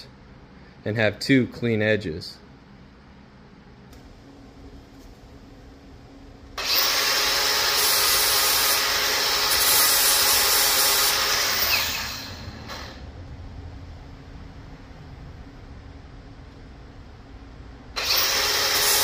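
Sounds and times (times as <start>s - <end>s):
angle grinder grinding metal: 6.6s - 13.0s, 18.0s - 19.0s.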